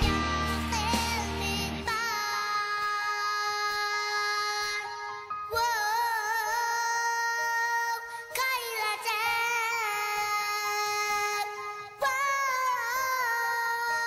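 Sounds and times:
sustained instrumental accompaniment: 0:00.0 - 0:02.2
boy singing with vibrato: 0:00.0 - 0:14.0.

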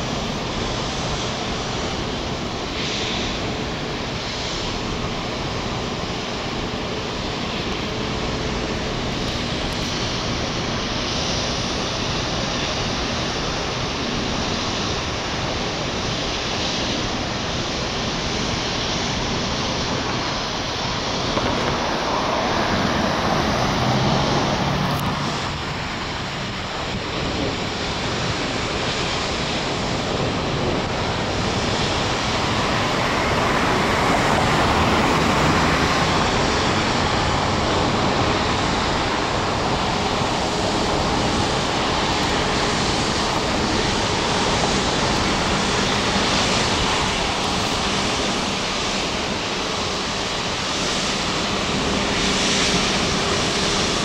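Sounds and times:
road traffic: 0:00.0 - 0:54.0
wind on microphone: 0:00.0 - 0:54.0
car approaching: 0:21.3 - 0:26.3
vehicle passing: 0:21.4 - 0:25.7.

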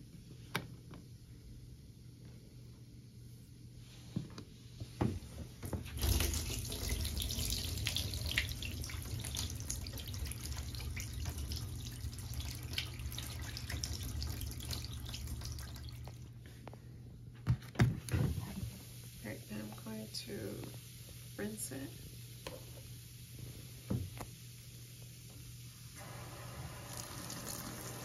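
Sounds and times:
water pouring into a drain: 0:05.9 - 0:16.3, 0:26.0 - 0:28.0.

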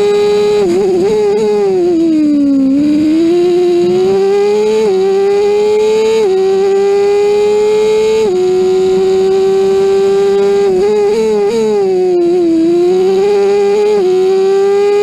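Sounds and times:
engine throttle blips on downshifts: 0:00.0 - 0:15.0
race car engine at full throttle: 0:00.0 - 0:15.0.

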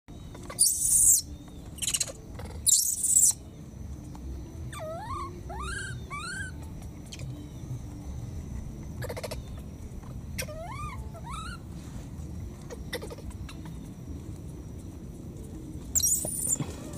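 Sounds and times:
baby monkey calling: 0:00.4 - 0:03.4, 0:04.7 - 0:07.3, 0:09.0 - 0:09.6, 0:10.4 - 0:11.7, 0:12.6 - 0:13.8, 0:16.0 - 0:16.9
rustling leaves and branches: 0:11.6 - 0:16.9.

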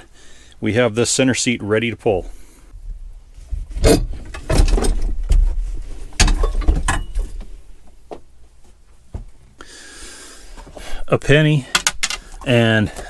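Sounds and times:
metal seat frame clunking and rattling: 0:03.7 - 0:07.5.

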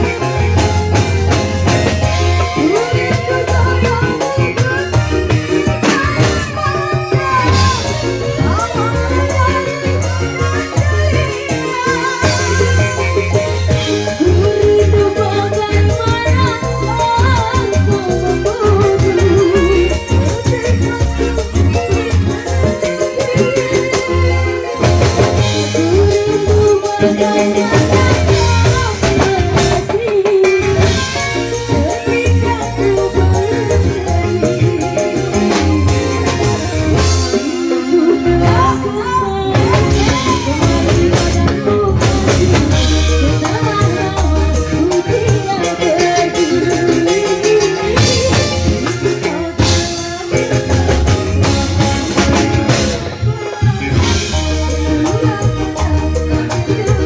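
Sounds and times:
heavy bass notes: 0:00.0 - 0:30.0, 0:30.6 - 0:57.0
driving drum beat: 0:00.0 - 0:57.0
keyboard: 0:00.0 - 0:57.0
live band music: 0:00.0 - 0:57.0
woman singing into microphone: 0:00.0 - 0:57.0.

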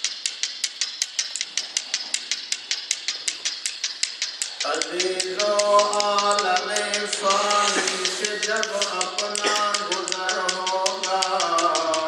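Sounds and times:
prayer beads clicking: 0:00.0 - 0:12.0.

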